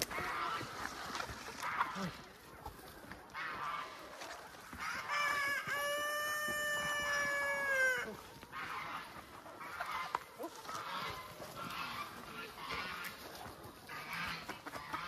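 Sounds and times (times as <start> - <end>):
chickens clucking: 0.0 - 15.0
rooster crowing: 5.1 - 8.1.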